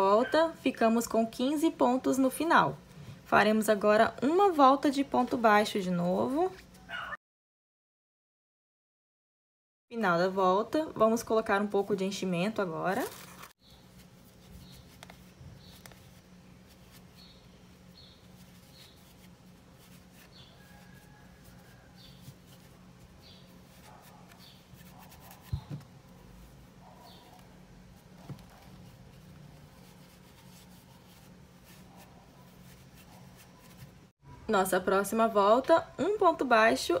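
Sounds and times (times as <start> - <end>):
faint rustling of stuffing: 12.9 - 34.1.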